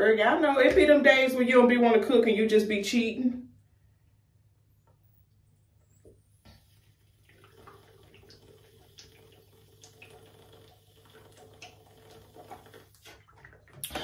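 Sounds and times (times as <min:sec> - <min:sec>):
water sloshing in jug: 0:06.5 - 0:14.0.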